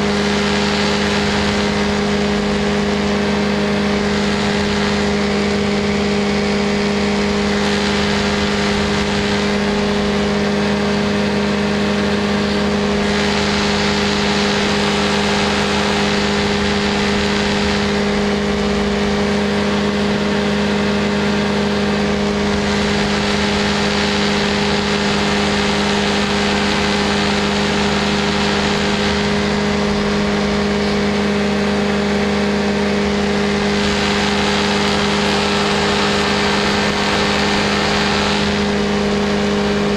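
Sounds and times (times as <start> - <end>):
small aircraft engine drone: 0.0 - 39.9
wind rushing over microphone: 0.0 - 39.9.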